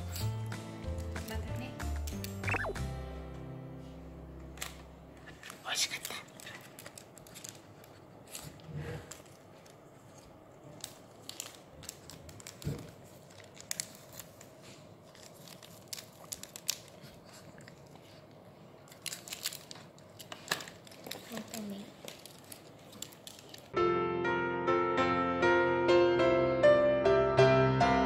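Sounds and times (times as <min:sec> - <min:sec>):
foil packaging crinkling: 0:05.8 - 0:17.9, 0:18.8 - 0:23.8.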